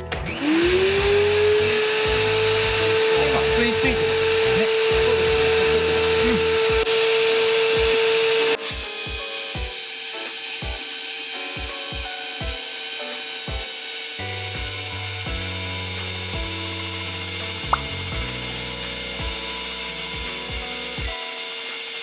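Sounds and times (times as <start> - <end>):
dust extractor motor whining: 0.2 - 22.0
air hissing through hose: 0.4 - 8.7.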